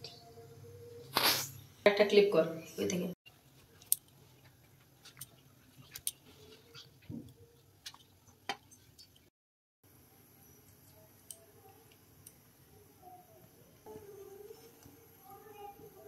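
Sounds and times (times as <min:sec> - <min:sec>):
milk simmering with ticks and pops: 0:03.5 - 0:09.3, 0:10.4 - 0:12.6.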